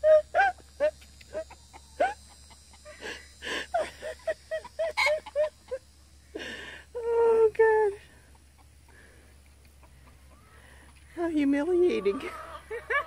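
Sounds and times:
chicken clucking: 0.5s - 3.0s, 4.0s - 6.0s, 8.2s - 11.1s, 11.7s - 13.0s
breathy rasps: 2.8s - 5.3s, 6.2s - 7.0s.

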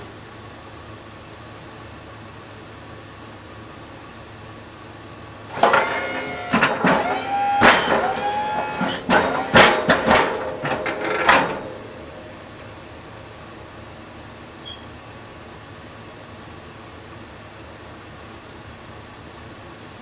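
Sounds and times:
hydraulic pump whining: 5.5s - 12.7s.

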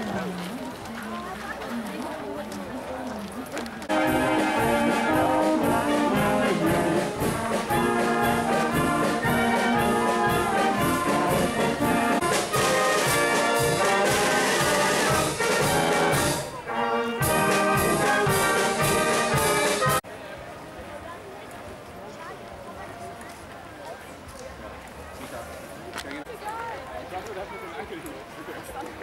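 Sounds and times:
wind band playing lively piece: 3.9s - 20.0s.

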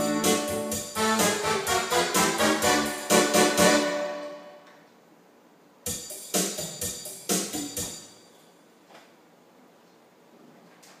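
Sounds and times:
electronic keyboard music: 0.0s - 4.7s.

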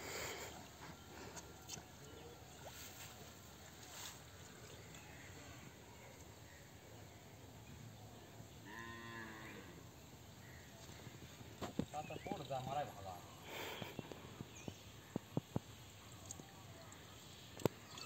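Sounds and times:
faint outdoor background: 0.0s - 18.0s
cow mooing: 8.7s - 9.8s.

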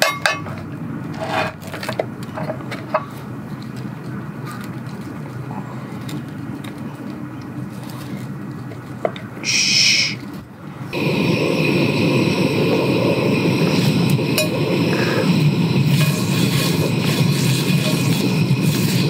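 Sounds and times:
seasoning sprinkled hiss: 11.0s - 19.0s
fat sizzling in a frying pan: 13.2s - 19.0s.

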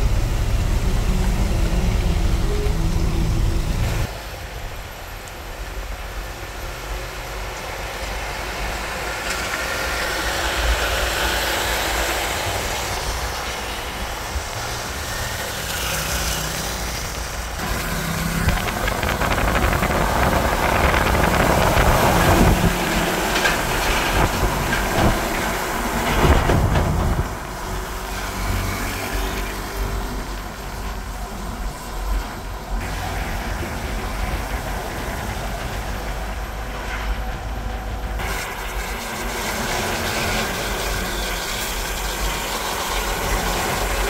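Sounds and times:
diesel trucks passing on wet road: 0.0s - 44.0s
truck rattles and clanks: 16.9s - 44.0s.

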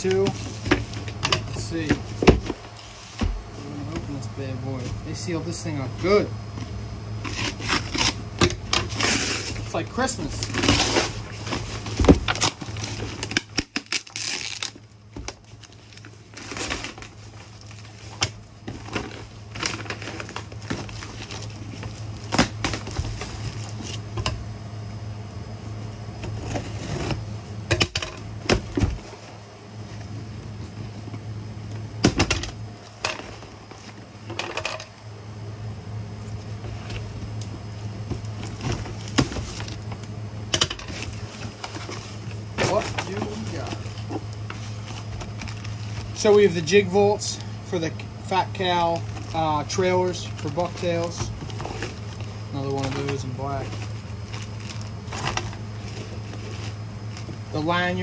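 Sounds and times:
steady low hum: 0.0s - 58.0s
paper crinkling and tearing: 7.2s - 8.2s, 8.8s - 14.8s, 15.4s - 24.0s, 48.5s - 57.3s.

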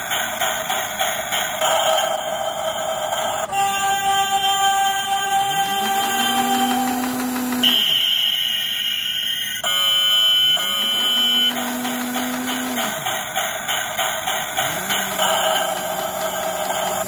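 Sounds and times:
electronic background music: 1.4s - 17.0s.

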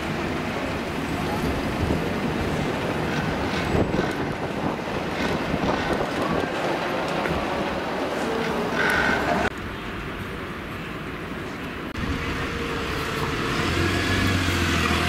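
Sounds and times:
wind on microphone: 1.3s - 6.6s.

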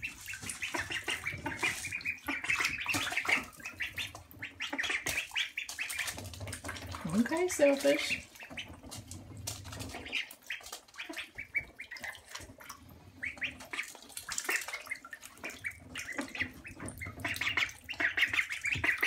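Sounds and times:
ducklings peeping: 0.0s - 19.0s
ducklings slurping food: 0.0s - 19.0s
duckling bills clicking: 0.2s - 12.5s.

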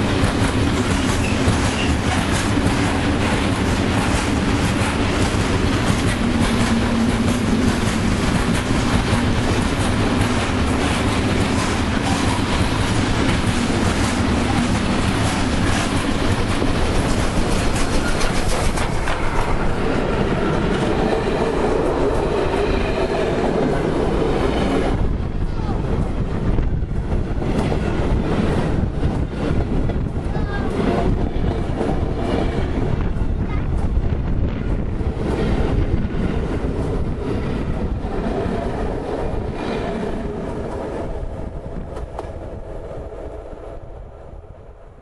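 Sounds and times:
wheels clicking over rail joints: 0.0s - 19.8s
freight train rumbling and clattering: 0.0s - 45.0s
steam locomotive passing: 0.0s - 45.0s.

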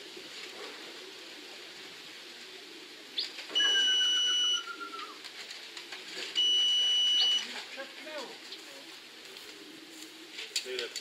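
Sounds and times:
faint falling whistle-like tone: 3.6s - 5.2s.

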